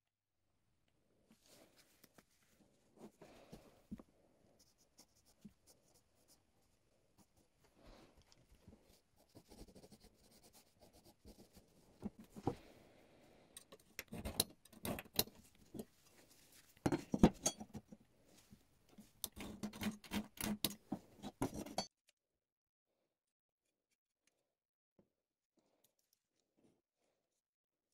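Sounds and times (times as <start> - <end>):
metal tools clinking on steel plate: 16.9 - 17.8.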